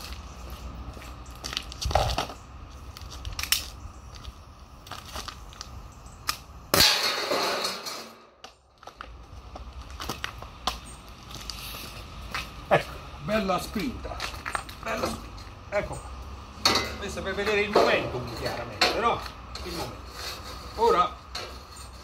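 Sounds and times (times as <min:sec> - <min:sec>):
metal plates clattering: 0:06.8 - 0:08.4, 0:16.6 - 0:20.5.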